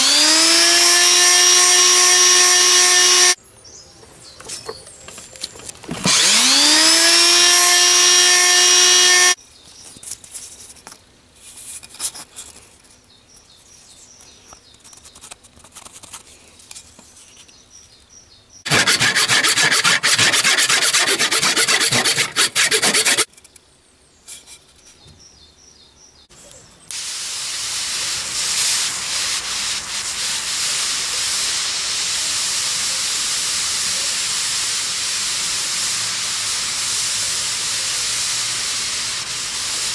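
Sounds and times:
electric sander motor whine: 0.0 - 3.4, 6.0 - 9.4
harsh sanding: 0.0 - 3.4, 6.1 - 9.4, 18.7 - 23.3, 27.0 - 39.9
gas torch flame hissing: 26.9 - 39.9.

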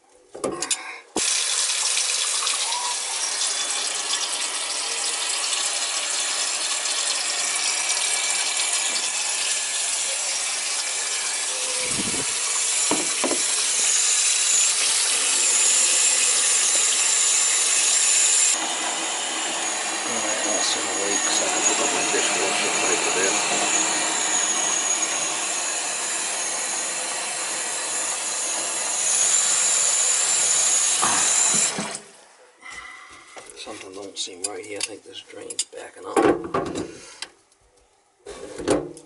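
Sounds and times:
water running from tap into sink: 1.2 - 18.6, 19.9 - 32.1.

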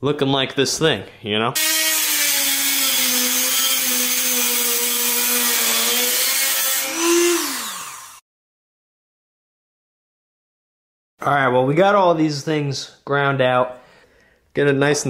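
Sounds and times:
electric grinder on metal: 1.6 - 8.2.

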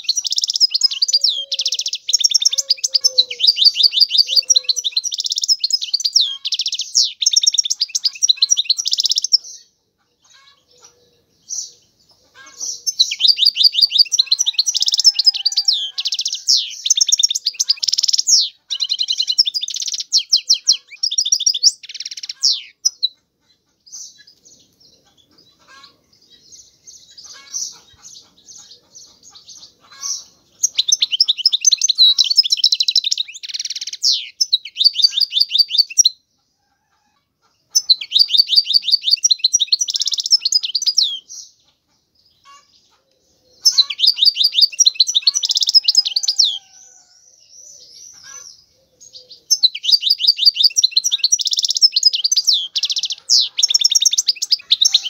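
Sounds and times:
goldfinch twittering song: 0.0 - 9.7, 11.5 - 23.2, 23.9 - 36.2, 37.7 - 41.6, 43.6 - 46.7, 49.2 - 55.0
soft scattered bird notes: 0.0 - 55.0.

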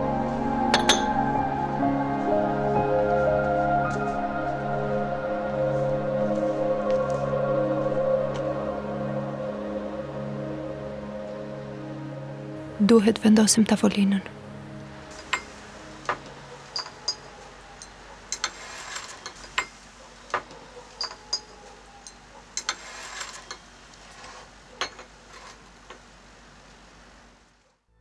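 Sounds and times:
cups and saucers clinking: 0.7 - 1.2, 16.1 - 23.7, 24.8 - 25.1
chairs moved on tiled floor: 16.1 - 17.4, 18.3 - 21.4, 22.6 - 26.0.

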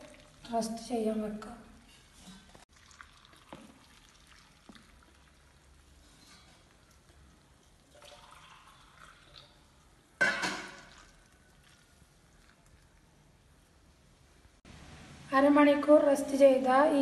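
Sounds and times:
water trickling: 0.0 - 1.2, 2.7 - 13.3.

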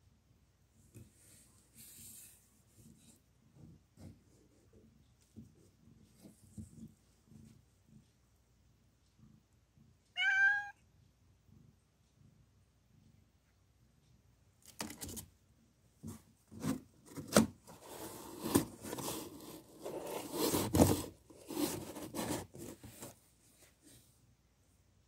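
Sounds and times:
cardboard scraping and rustling: 16.0 - 23.2.

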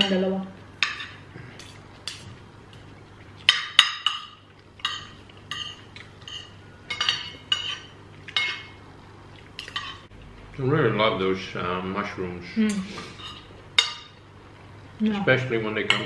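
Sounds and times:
cutlery clinking on plates: 3.4 - 8.8.

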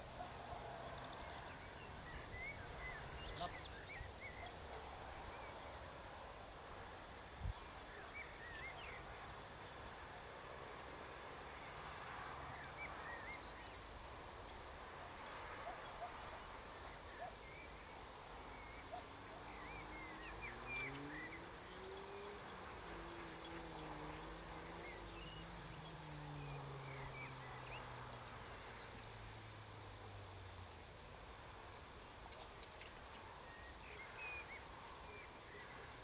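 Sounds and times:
faint field ambience: 0.0 - 36.0
small birds chirping: 1.0 - 9.8, 15.2 - 29.3, 32.1 - 36.0
distant engine hum: 18.6 - 30.0.

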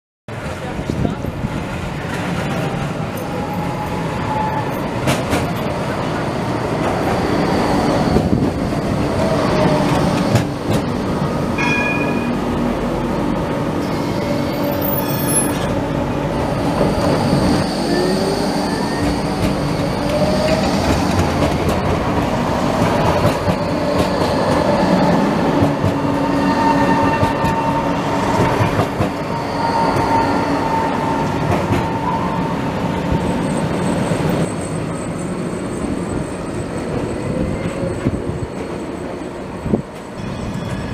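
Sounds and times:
train wheels rumbling on rails: 0.3 - 40.9
wheel squeals and clicks: 29.0 - 32.4.

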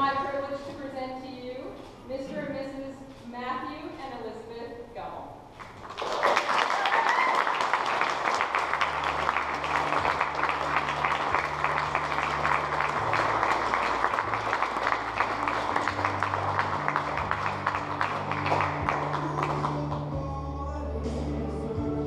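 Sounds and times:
audience applauding: 5.6 - 20.2.

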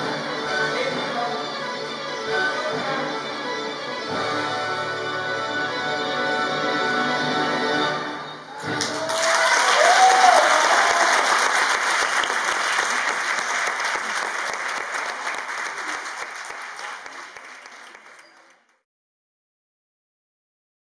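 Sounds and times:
audience applauding: 8.6 - 18.8.

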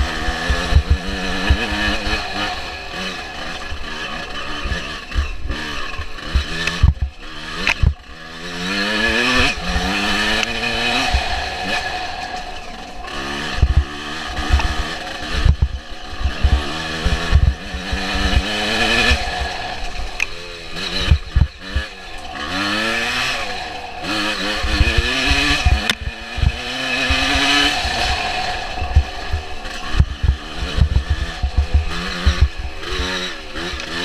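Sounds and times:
two-stroke motorcycle engine revving: 0.0 - 34.0.

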